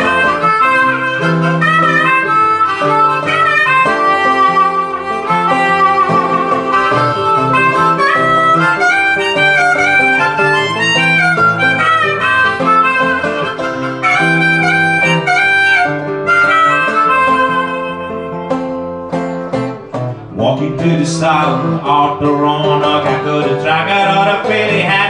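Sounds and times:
harmonica solo: 0.0s - 20.2s
strummed acoustic guitar: 0.0s - 25.0s.

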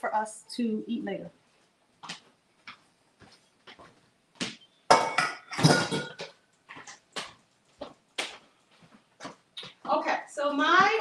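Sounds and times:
kitchenware clattering: 4.9s - 6.4s.

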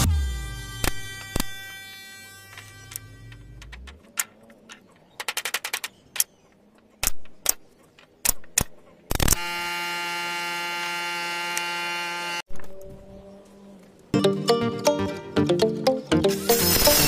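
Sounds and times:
pneumatic nailer shots: 0.0s - 1.9s, 16.3s - 17.0s
steady buzzing tone: 0.0s - 4.0s.

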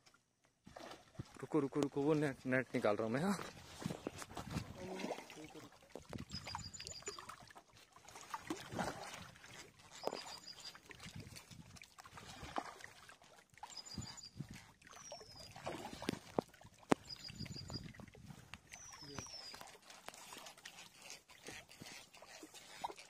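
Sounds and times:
fish splashing in water: 3.9s - 23.0s
short high chirping: 6.3s - 7.2s, 10.0s - 10.8s, 13.7s - 14.4s, 17.0s - 17.9s.

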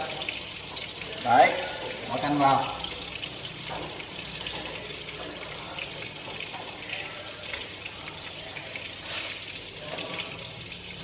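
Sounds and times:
fish sizzling in oil: 0.0s - 11.0s.

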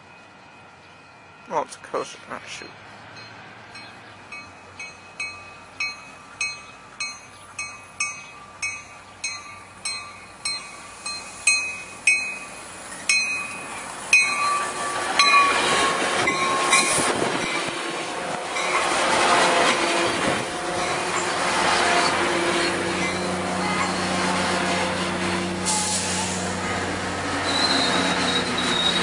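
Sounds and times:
train wheels rushing on rails: 2.7s - 29.0s
train bell ringing: 3.1s - 17.8s, 18.5s - 19.0s, 20.7s - 24.2s.

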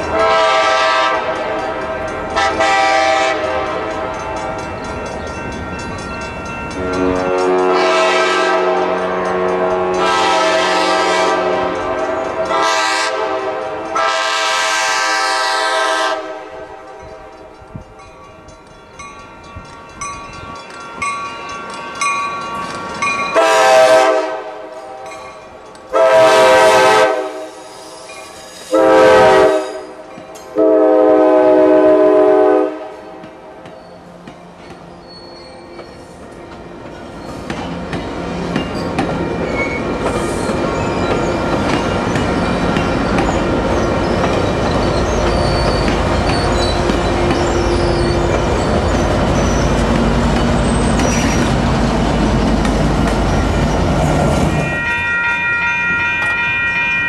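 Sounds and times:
train air horn blasts: 0.0s - 4.4s, 6.7s - 17.2s, 23.3s - 25.1s, 25.9s - 27.8s, 28.7s - 33.4s
wheels clicking over rail joints: 35.7s - 54.0s.

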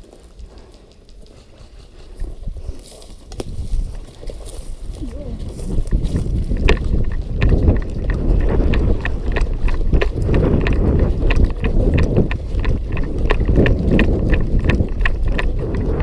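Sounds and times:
running footsteps on concrete: 0.0s - 16.0s
wind rumble on microphone: 0.0s - 16.0s.

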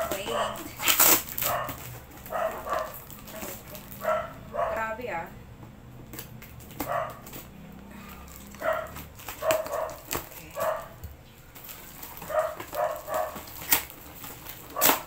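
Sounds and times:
small dog yapping: 8.6s - 11.0s, 12.2s - 13.5s, 14.7s - 15.0s.

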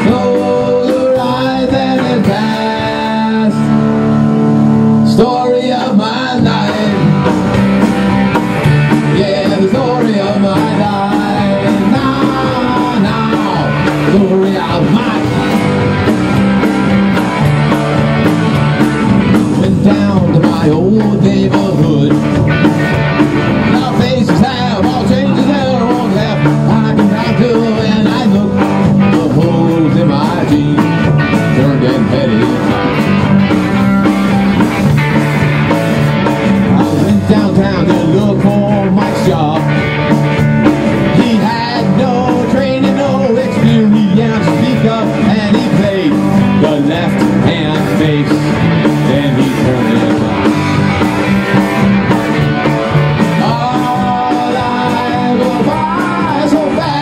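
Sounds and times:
drum kit: 0.0s - 57.0s
electric bass: 0.0s - 57.0s
electric guitar: 0.0s - 57.0s.

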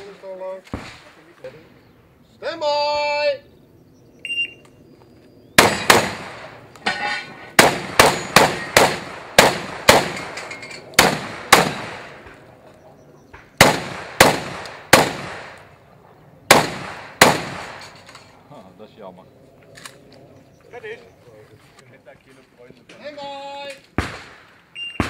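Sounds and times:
shotgun shots: 5.6s - 6.6s, 7.5s - 12.4s, 13.5s - 15.7s, 16.5s - 18.1s, 23.9s - 25.0s.

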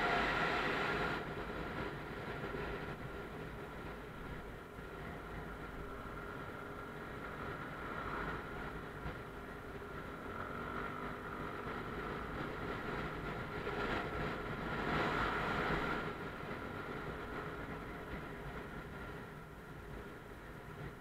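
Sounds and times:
motorcycle engine running: 0.0s - 21.0s
road noise: 0.0s - 21.0s.

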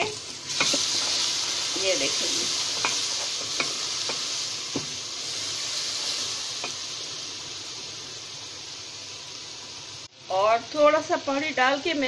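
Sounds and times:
food sizzling in hot oil: 0.0s - 12.0s.

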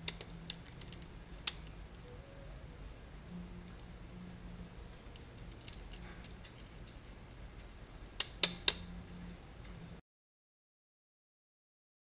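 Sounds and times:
small metal clicks: 0.0s - 2.0s, 5.1s - 8.9s.

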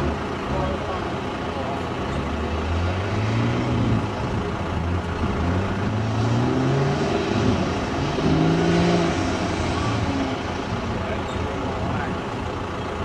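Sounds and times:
tractor engine at full throttle: 0.0s - 13.0s.

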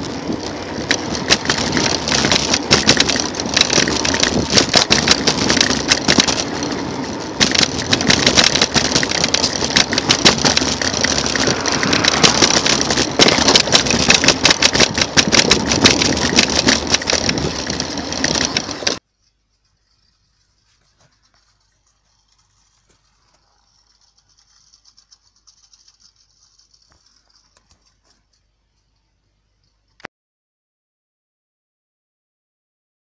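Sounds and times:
scooter wheels clattering on concrete: 0.0s - 19.0s.

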